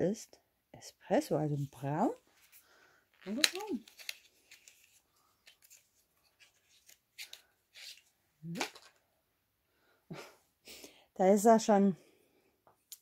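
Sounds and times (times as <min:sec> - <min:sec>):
hands handling cardboard packaging: 0:03.2 - 0:09.0.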